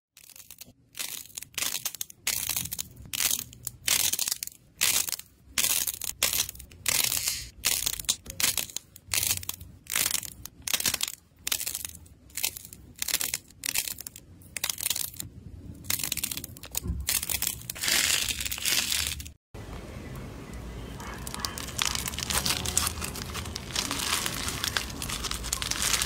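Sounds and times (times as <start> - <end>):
clay skin crackling when squeezed: 21.0 - 26.0.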